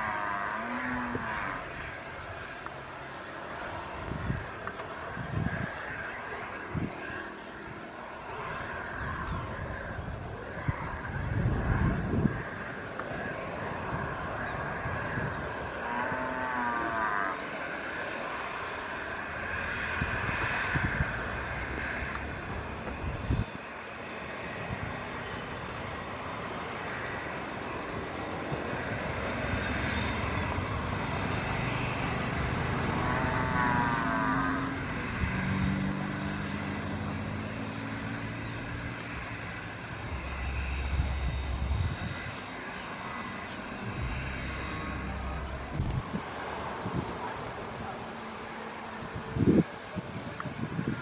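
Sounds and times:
jet engines whining at taxi power: 0.0s - 51.0s
low hum: 27.2s - 48.0s.

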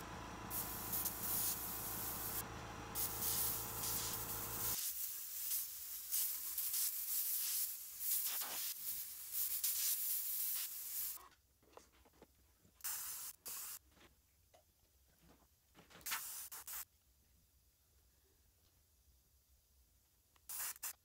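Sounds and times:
steady low hum: 0.0s - 4.8s
airbrush spraying in hissing bursts: 0.5s - 2.4s, 3.0s - 11.2s, 12.8s - 13.8s, 16.1s - 16.9s, 20.5s - 21.0s.

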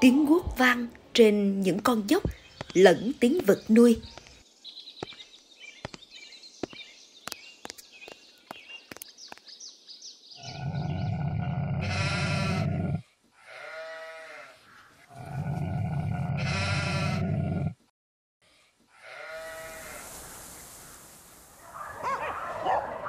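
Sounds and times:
birds chirping: 0.0s - 13.2s, 19.8s - 23.0s
livestock bleating: 13.4s - 14.6s, 19.0s - 20.0s.

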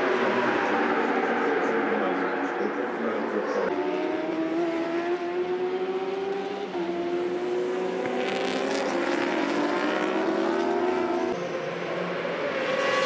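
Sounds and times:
motorbikes passing close: 0.0s - 13.0s
motorbike engines at high revs: 3.7s - 11.3s.

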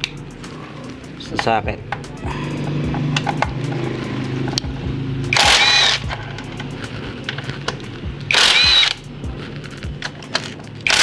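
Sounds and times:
impact wrench hammering: 2.8s - 6.7s, 7.6s - 9.0s
socket and bolt clicks: 2.9s - 3.9s.

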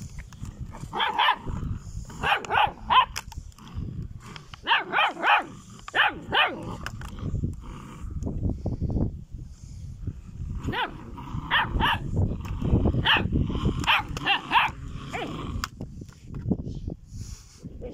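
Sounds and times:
puppies growling: 0.4s - 8.2s, 10.4s - 15.8s.

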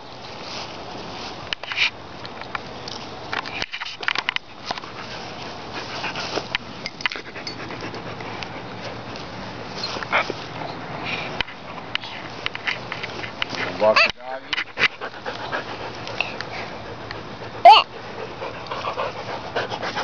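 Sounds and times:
dog panting: 4.8s - 9.2s, 11.0s - 20.0s.

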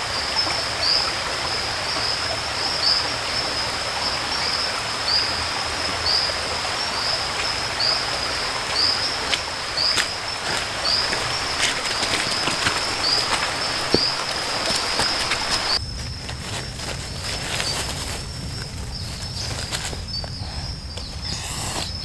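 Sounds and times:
stream rushing: 0.0s - 15.8s
footsteps on rocks: 8.3s - 20.4s.

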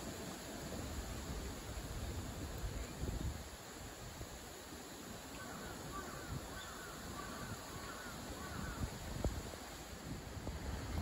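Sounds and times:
bird calling: 5.4s - 8.9s.

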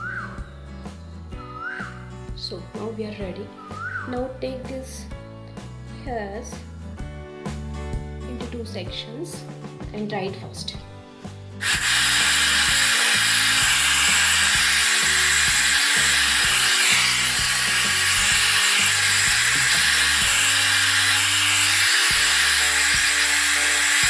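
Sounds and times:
hair dryer blowing: 11.6s - 24.0s
hair dryer switching on: 11.6s - 24.0s.

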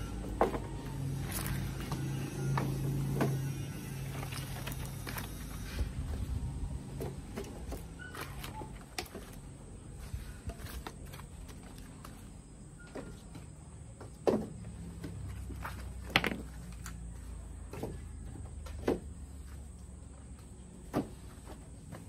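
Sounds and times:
firewood clattering and knocking: 13.4s - 17.0s.

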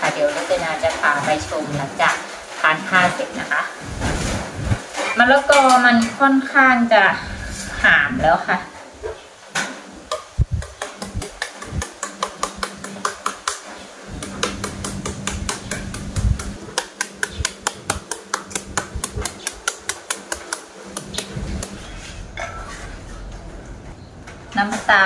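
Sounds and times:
knife chopping papaya: 10.2s - 21.8s.

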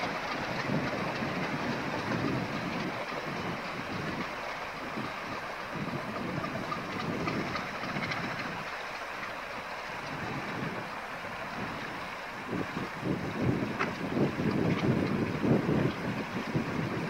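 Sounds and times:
coaches running on rails: 0.0s - 17.0s.

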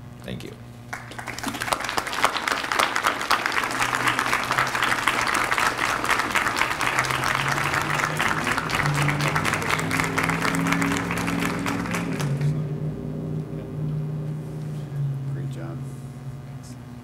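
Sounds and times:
low hum of held tones: 0.0s - 17.0s
crowd applauding: 0.9s - 12.6s.

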